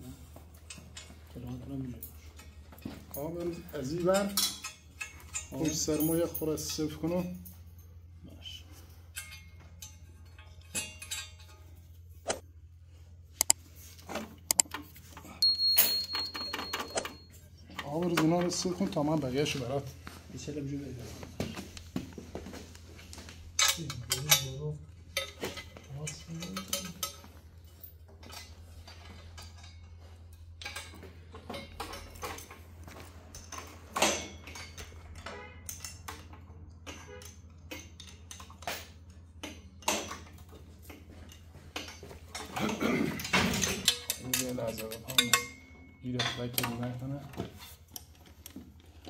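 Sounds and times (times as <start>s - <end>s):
wrench and ratchet clinking: 0.6s - 7.8s, 9.0s - 12.0s, 14.5s - 18.7s, 23.6s - 32.7s, 33.3s - 46.9s.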